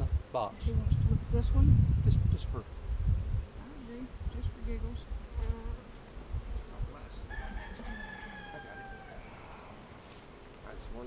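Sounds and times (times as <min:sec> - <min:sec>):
rooster crowing: 0:07.2 - 0:10.0.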